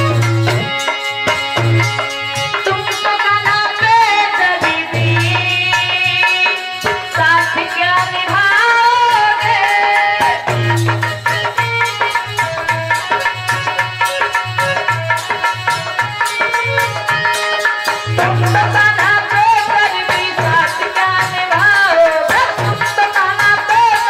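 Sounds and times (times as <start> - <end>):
melody instrument gliding notes: 0.0 - 2.2
rattling percussion: 0.0 - 24.0.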